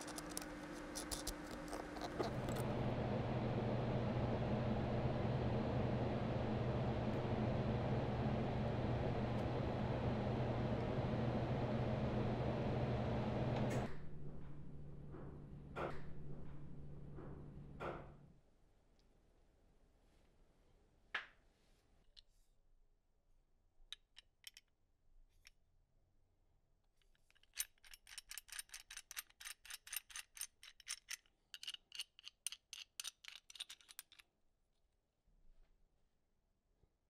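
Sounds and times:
metallic clicks of spinning wrench nut: 27.3s - 34.2s.

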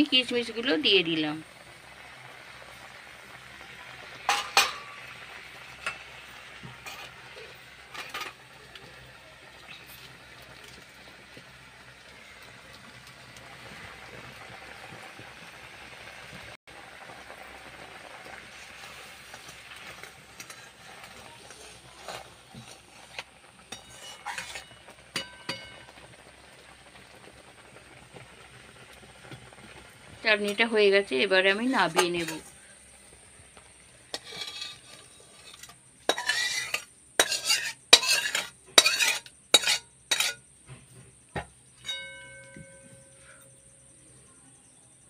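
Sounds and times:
soft bubbling hiss: 0.0s - 45.0s
metal spatula scraping pan: 3.9s - 9.1s, 18.7s - 26.0s, 31.5s - 32.7s, 34.0s - 40.5s.

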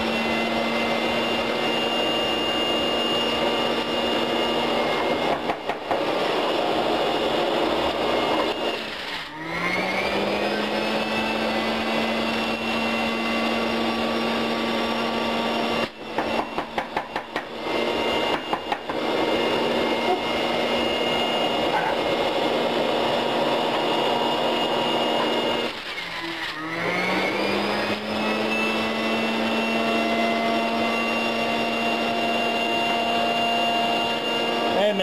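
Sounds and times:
juicer motor whine: 0.0s - 35.0s
juicer knocking: 9.8s - 25.9s.

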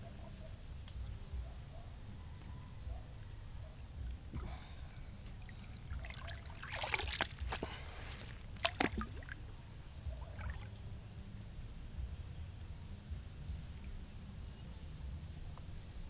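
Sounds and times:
water dripping: 4.0s - 9.4s
hands splashing in pond water: 4.3s - 9.4s, 10.3s - 10.8s.

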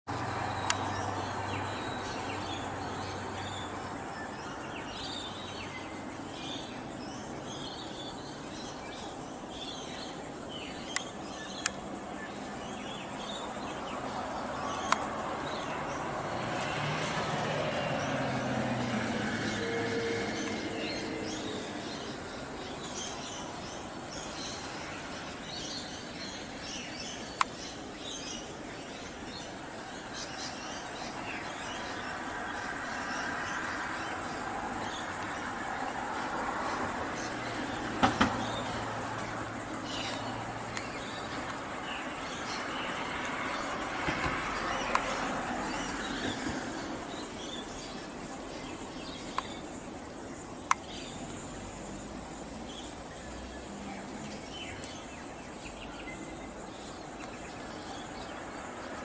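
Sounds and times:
vehicle passing by: 0.1s - 6.5s, 13.2s - 26.8s, 29.3s - 49.6s
small birds chirping: 0.1s - 19.7s, 20.3s - 59.0s
traffic hum: 0.1s - 59.0s.

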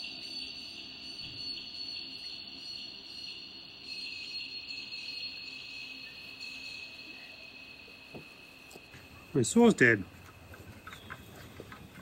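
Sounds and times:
crickets chirping: 0.0s - 12.0s.

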